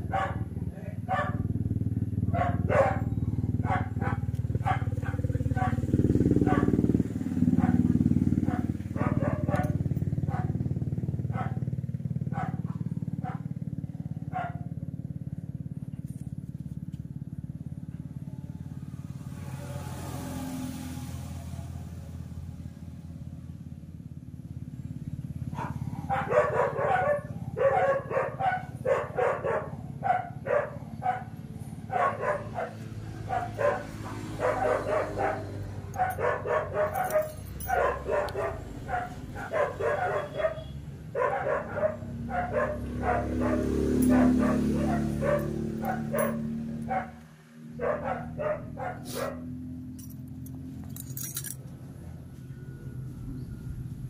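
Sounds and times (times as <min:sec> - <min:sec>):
dog barking: 0:00.0 - 0:01.5, 0:02.3 - 0:14.8, 0:25.5 - 0:50.2.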